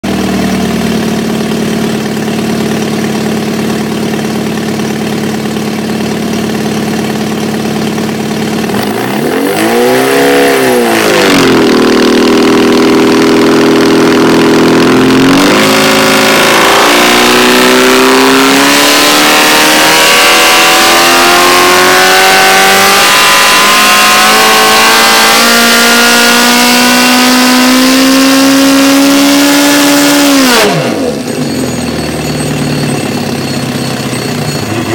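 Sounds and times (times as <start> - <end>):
car engine revving on a dyno: 0.0 - 34.3.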